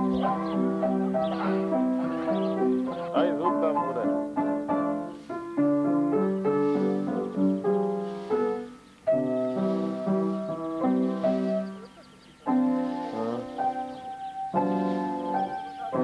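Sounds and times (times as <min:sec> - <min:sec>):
keyboard melody over held chords: 0:00.0 - 0:16.0.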